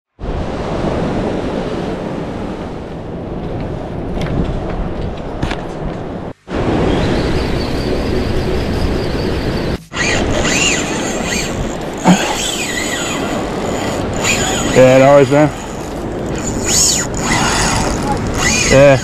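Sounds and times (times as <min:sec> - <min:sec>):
surf washing on rocks: 0:00.2 - 0:19.0
wind buffeting microphone: 0:00.2 - 0:19.0.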